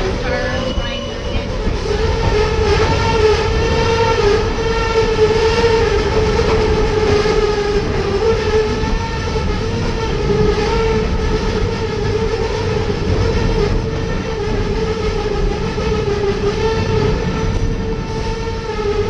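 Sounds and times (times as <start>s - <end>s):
wheels rumbling on track: 0.0s - 19.0s
train brakes squealing: 0.2s - 1.7s.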